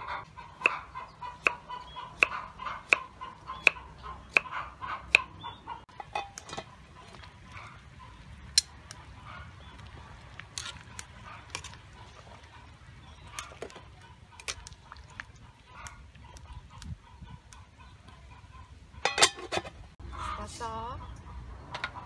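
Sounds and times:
metal tongs clinking on pot: 19.0s - 19.6s.

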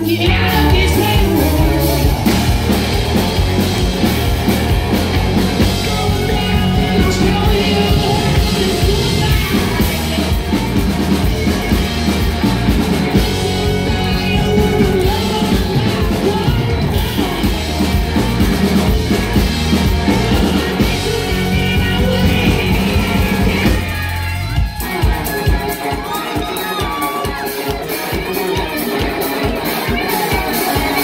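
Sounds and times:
lead vocals singing: 0.0s - 3.8s, 5.3s - 11.2s, 12.9s - 18.5s, 20.1s - 23.9s
bass guitar: 0.0s - 31.0s
drum kit: 0.0s - 31.0s
electric guitar: 0.0s - 31.0s.

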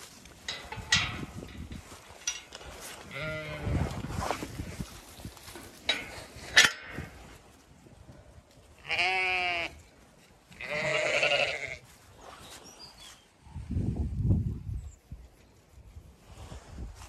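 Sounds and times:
sheep bleating: 8.8s - 9.8s, 10.6s - 11.8s.

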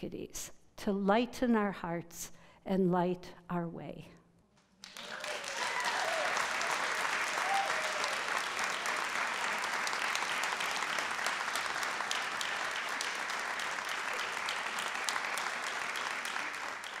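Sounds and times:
audience applauding: 4.8s - 17.0s.

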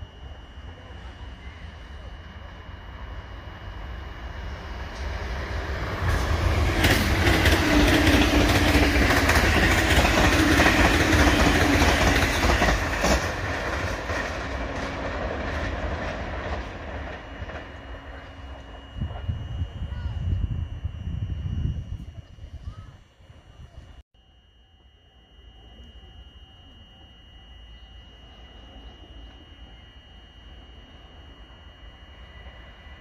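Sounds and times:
electric train passing: 0.0s - 24.0s, 24.7s - 33.0s
train wheels clicking: 4.9s - 19.3s.

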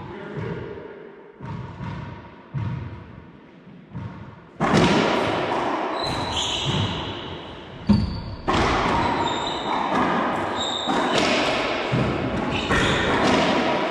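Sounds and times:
racquetball strikes echoing: 0.3s - 13.9s
ball bouncing: 3.9s - 13.7s
sneaker squeaks on hardwood: 5.9s - 11.4s, 12.4s - 13.2s.

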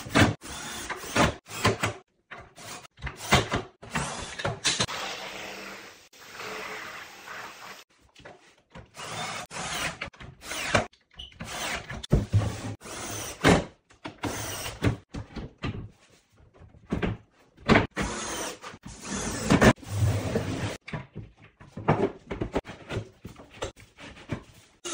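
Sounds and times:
knocks and clatter of wood and tools: 13.4s - 18.0s, 20.8s - 24.6s.

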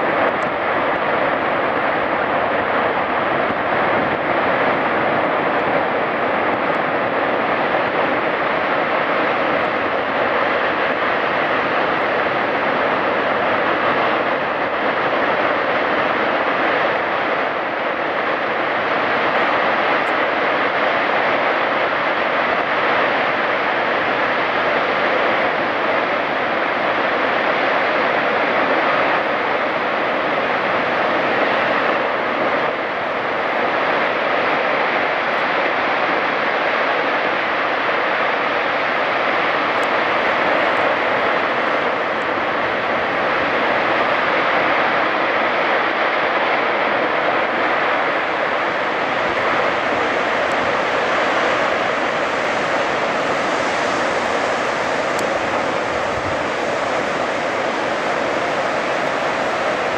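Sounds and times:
waves washing over rocks: 39.1s - 59.9s.

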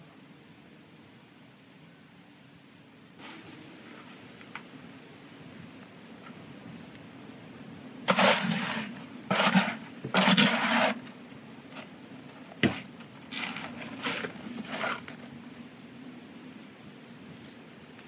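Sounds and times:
bucket scraping wet concrete: 8.0s - 15.6s.

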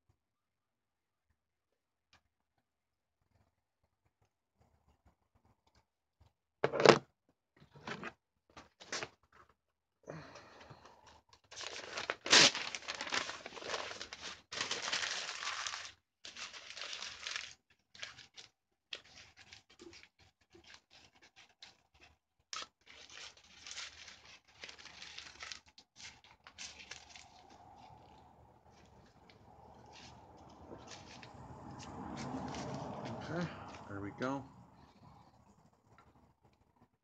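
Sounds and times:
paper tearing and crumpling: 11.5s - 29.1s, 29.7s - 31.4s.

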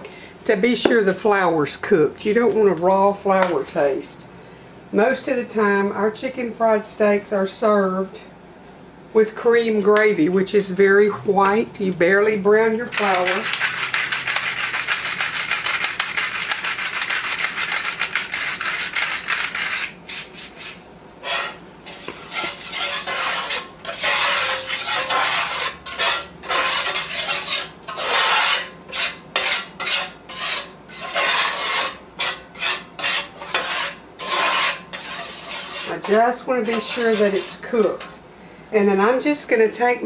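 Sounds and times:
whisk scraping a skillet: 12.9s - 38.2s.

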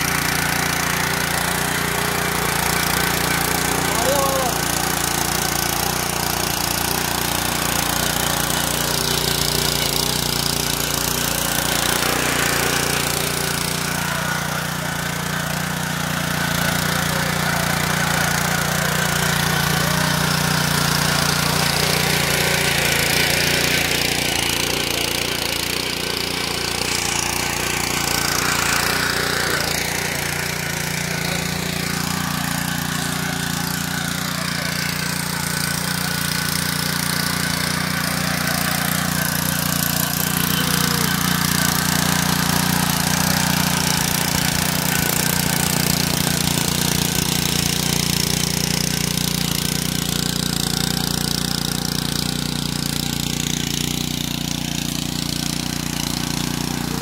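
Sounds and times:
power tiller engine running: 0.0s - 57.0s
tines digging soil: 0.0s - 57.0s.

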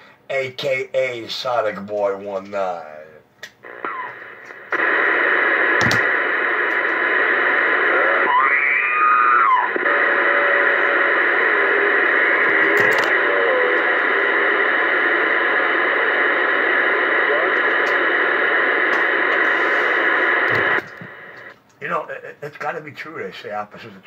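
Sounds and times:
radio static hiss: 0.3s - 24.0s
garbled voice over radio: 3.7s - 21.5s.

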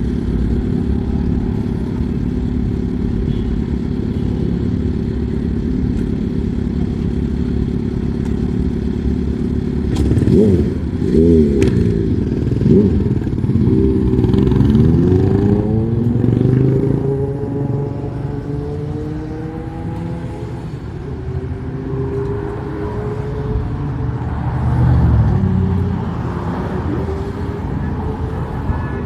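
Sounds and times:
vehicle engine revving: 9.4s - 28.3s.

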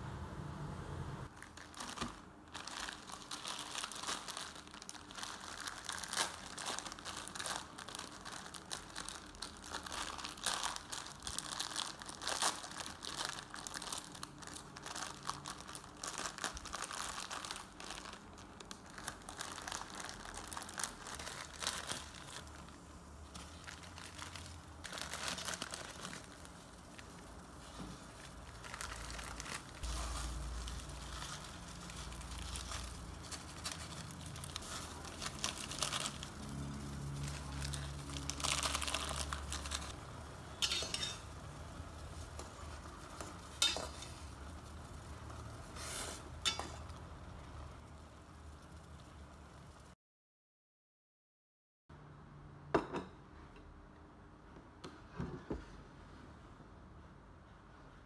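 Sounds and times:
plastic packets crinkling: 1.3s - 47.0s.

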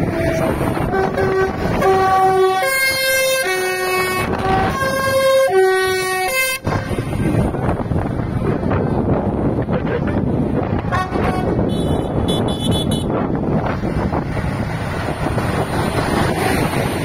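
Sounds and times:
tractor musical horn: 0.0s - 7.5s, 10.9s - 13.2s
passing tractor engines: 0.0s - 17.0s.

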